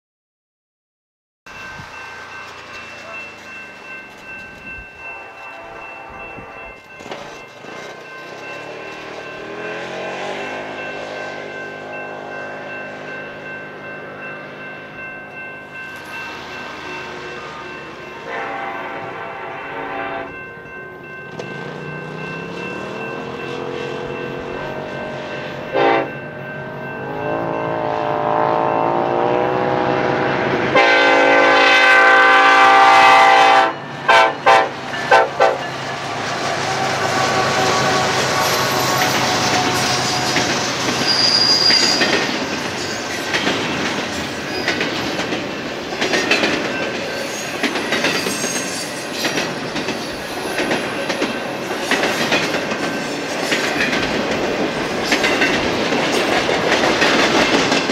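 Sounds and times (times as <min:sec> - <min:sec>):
locomotive air horn: 0:05.1 - 0:06.8, 0:16.8 - 0:20.3, 0:25.7 - 0:26.2, 0:30.0 - 0:35.6, 0:36.6 - 0:40.4
freight cars rumbling past: 0:06.6 - 0:30.8, 0:33.7 - 0:57.9
high wheel squeal: 0:35.8 - 0:43.4, 0:47.1 - 0:50.8.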